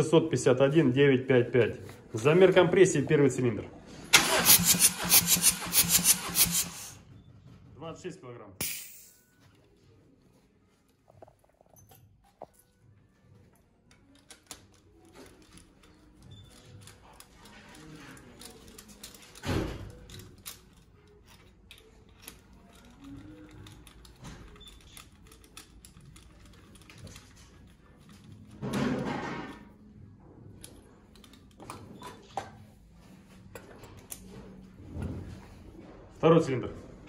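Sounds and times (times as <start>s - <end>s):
tools clicking and tapping on engine: 4.2s - 6.9s.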